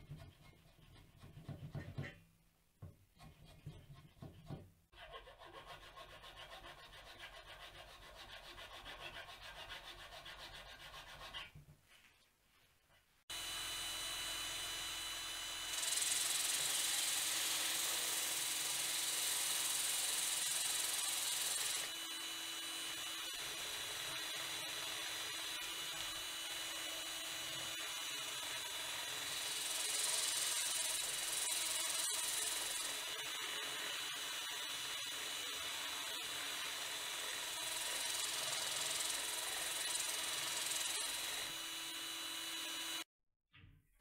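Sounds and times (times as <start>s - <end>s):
hand tool rasping wooden dowel: 0.0s - 2.2s, 3.1s - 11.6s
electric drill running: 13.3s - 43.1s.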